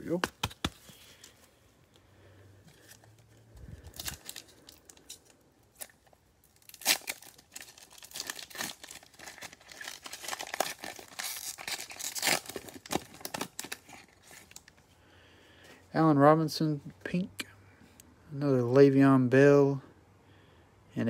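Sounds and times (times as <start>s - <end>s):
foil wrapper tearing and crinkling: 3.8s - 14.7s.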